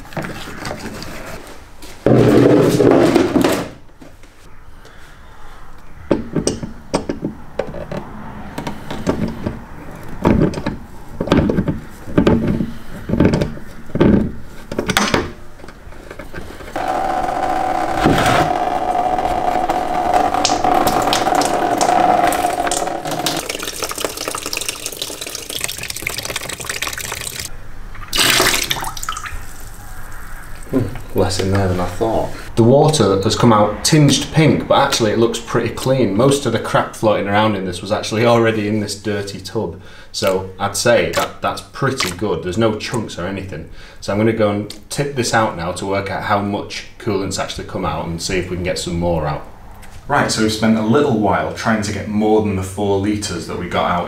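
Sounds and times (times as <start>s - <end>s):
coolant pouring into plastic tub: 20.4s - 27.5s, 28.1s - 29.8s.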